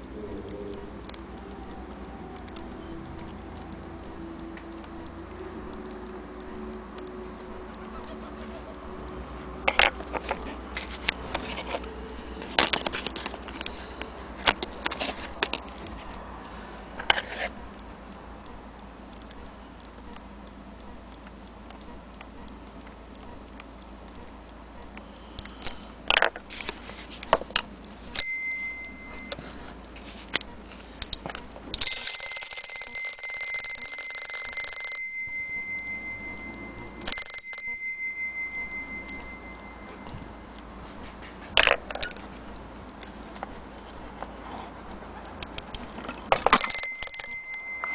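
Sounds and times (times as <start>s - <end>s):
clock bell striking: 28.2s - 29.5s, 31.8s - 41.5s, 46.5s - 47.9s.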